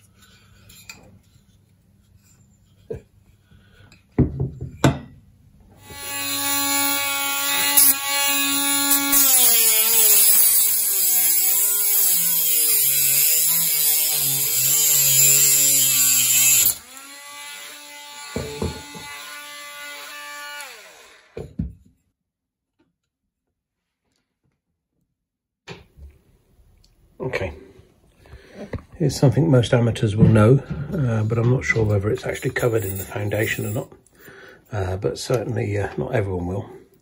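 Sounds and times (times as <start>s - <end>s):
rotary tool cutting metal: 5.8s - 21.4s.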